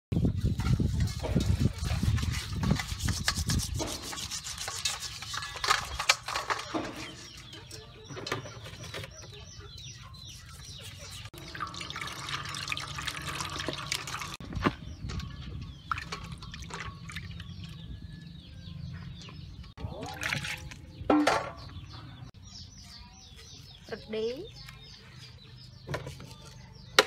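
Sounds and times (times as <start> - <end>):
fish scraping in steel bowl: 0.6 - 7.6
water running into bowl: 11.4 - 14.4.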